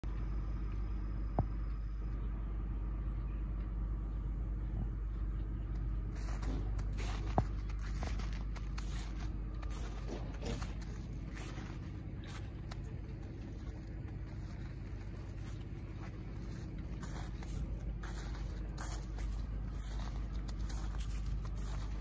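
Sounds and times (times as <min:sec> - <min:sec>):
dirt bike engine idling: 0:00.8 - 0:22.0
scuffing noises: 0:05.7 - 0:22.0.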